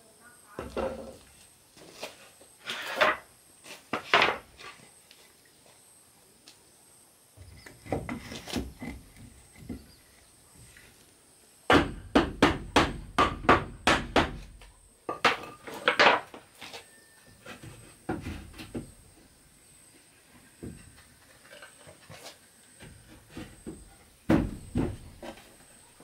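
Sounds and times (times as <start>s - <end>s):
hammer striking wood: 11.7s - 14.5s.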